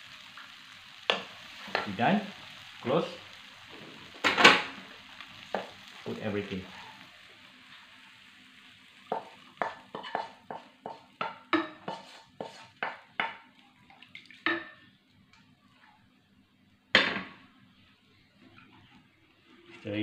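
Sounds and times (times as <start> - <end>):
wooden spatula tapping frying pan: 1.1 - 1.9, 9.1 - 13.5
pan clunking onto stove: 4.2 - 4.8.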